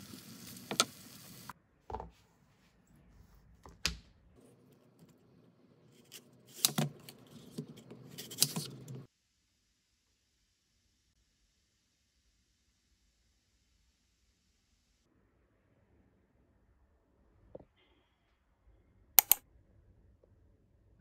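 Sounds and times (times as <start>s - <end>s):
food sizzling in a frying pan: 0.0s - 1.6s
utensil scrapes: 4.4s - 9.1s
knife cutting apple on board: 5.9s - 9.1s.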